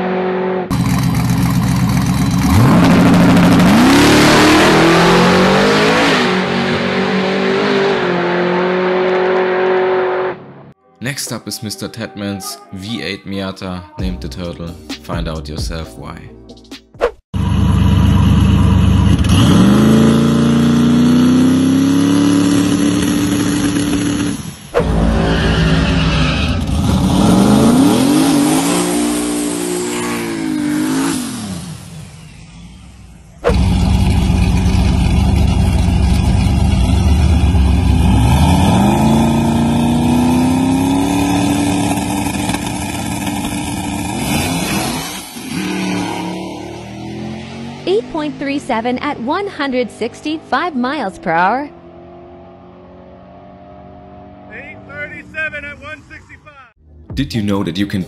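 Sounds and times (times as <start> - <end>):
car engine revving: 0.0 - 10.8, 17.4 - 58.0.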